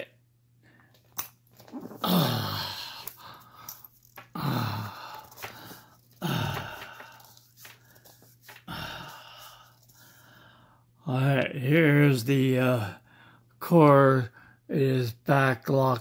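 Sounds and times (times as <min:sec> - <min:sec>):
man groaning: 0:01.7 - 0:03.1, 0:04.3 - 0:05.3, 0:06.2 - 0:07.0.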